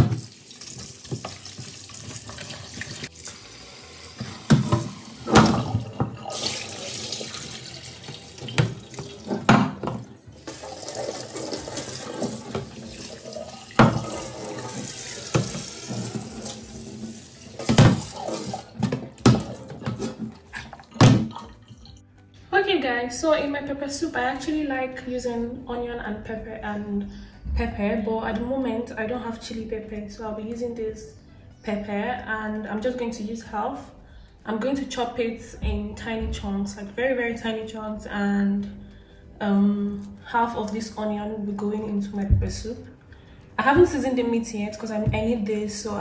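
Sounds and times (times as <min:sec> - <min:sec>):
water poured out of pot: 0:04.2 - 0:09.5, 0:10.3 - 0:22.0
tap running into metal sink: 0:13.7 - 0:16.6.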